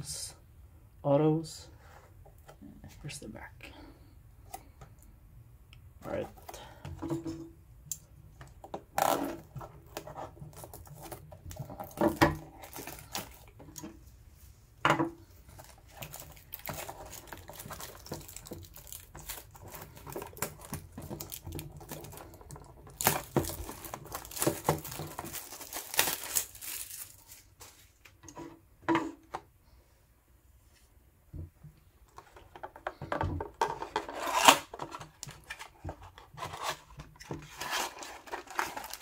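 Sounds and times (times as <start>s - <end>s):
plastic shrink wrap crinkling: 15.5s - 28.0s, 37.5s - 39.0s.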